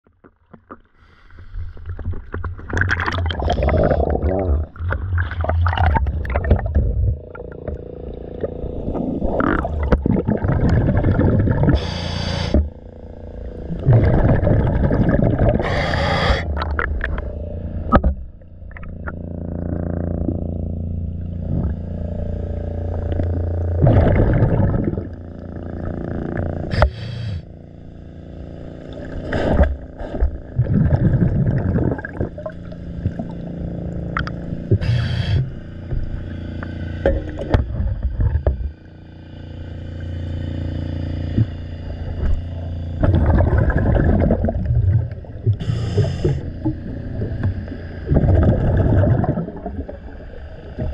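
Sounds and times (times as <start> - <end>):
low underwater hum: 0.0 - 50.9
exhaled bubble bursts: 1.7 - 12.7, 13.6 - 17.2, 21.4 - 21.9, 23.0 - 27.0, 29.2 - 33.5, 41.4 - 50.9
regulator inhalations moaning: 11.2 - 12.7, 15.5 - 16.7, 34.7 - 35.6, 45.5 - 46.8.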